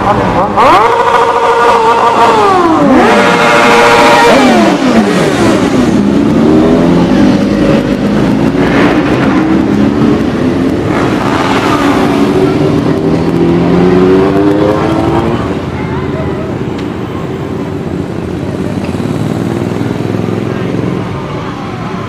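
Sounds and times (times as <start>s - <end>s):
motorcycles revving past: 0.0s - 15.8s.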